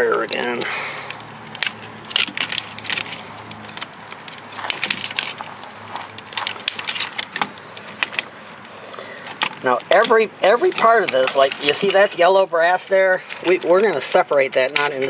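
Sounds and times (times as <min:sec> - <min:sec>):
plastic and metal parts clicking: 0:00.1 - 0:12.2.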